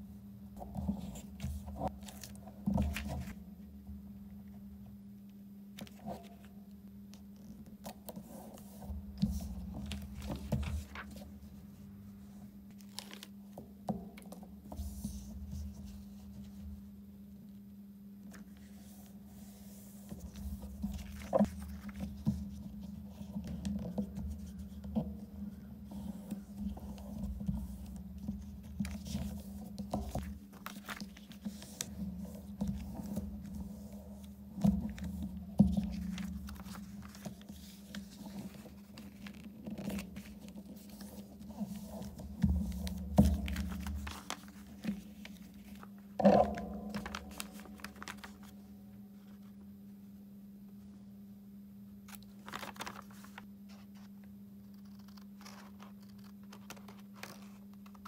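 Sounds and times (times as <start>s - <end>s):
steady low hum: 0.0s - 54.7s
paper rustling and folding: 0.6s - 3.4s, 5.8s - 6.6s, 7.4s - 13.6s, 18.3s - 49.6s, 52.1s - 58.0s
paper tapping on tabletop: 41.7s - 48.5s.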